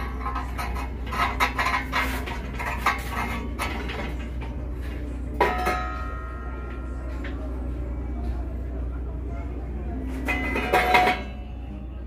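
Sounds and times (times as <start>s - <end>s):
metal screw cap clinking and scraping: 0.0s - 4.2s.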